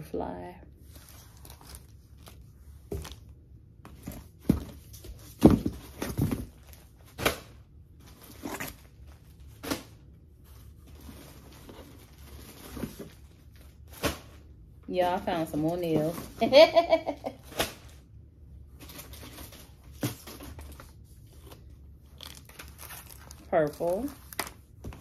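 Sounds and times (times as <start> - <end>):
plastic packages crinkling: 0.8 - 3.4, 18.7 - 25.0.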